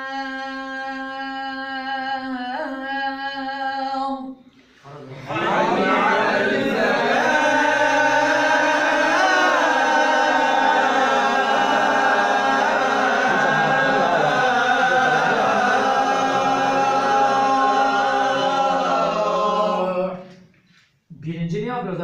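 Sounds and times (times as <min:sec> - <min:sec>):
men chanting call to prayer: 0:04.9 - 0:20.4.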